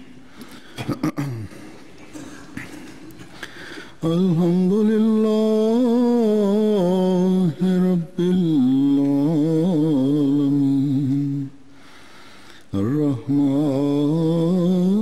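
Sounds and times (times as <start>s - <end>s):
man chanting: 4.0s - 11.6s, 12.7s - 15.0s.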